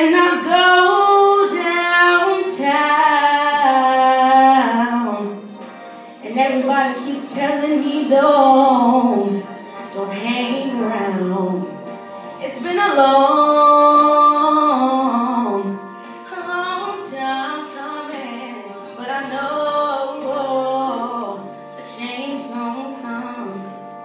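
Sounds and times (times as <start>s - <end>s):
woman singing soul ballad: 0.0s - 5.5s, 6.2s - 24.0s.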